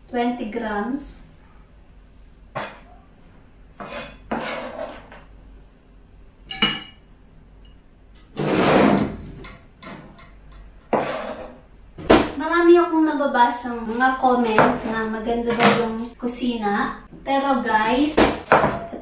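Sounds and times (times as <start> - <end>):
knife scraping cutting board: 2.6 - 2.9, 3.7 - 5.2, 10.9 - 11.6, 13.9 - 15.9.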